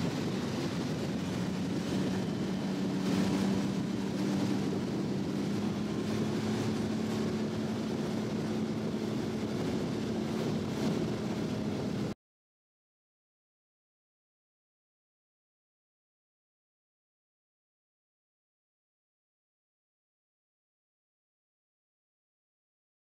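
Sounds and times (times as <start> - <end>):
motorboat engine running: 0.0 - 12.2
water noise: 0.0 - 12.2
wind: 0.0 - 12.2.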